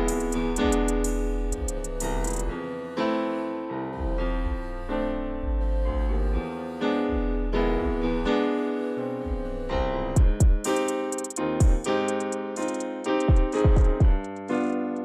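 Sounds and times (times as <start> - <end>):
deep bass: 0.0 - 2.6, 4.0 - 8.4, 9.0 - 10.7
electric piano chords: 0.0 - 15.0.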